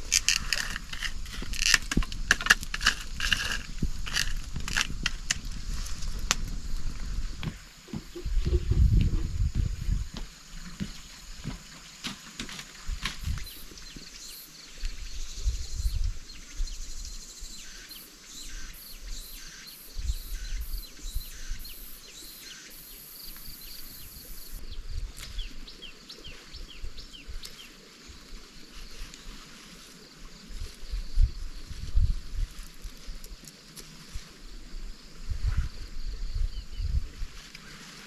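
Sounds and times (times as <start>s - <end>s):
low uneven rumble: 0.0s - 10.2s.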